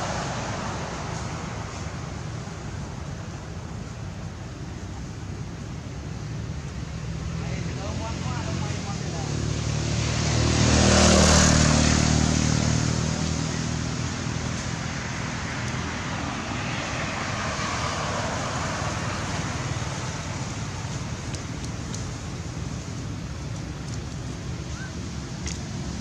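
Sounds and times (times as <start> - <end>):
road hiss: 0.0 - 26.0
vehicle engine passing: 7.2 - 21.3.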